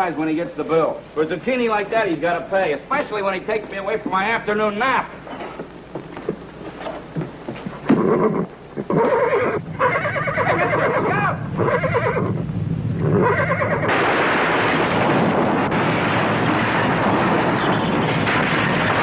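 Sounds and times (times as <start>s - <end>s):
horse whinnying: 7.8s - 12.4s, 13.0s - 13.9s
earthquake rumbling roar: 11.6s - 19.0s
walls collapsing and debris falling: 13.9s - 19.0s.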